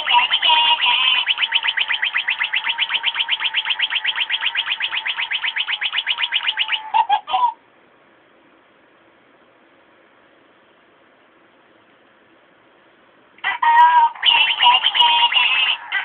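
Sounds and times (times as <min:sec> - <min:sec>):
toy synthesized chirps: 0:00.0 - 0:07.5, 0:14.2 - 0:16.0
steady electronic beep: 0:00.1 - 0:07.0.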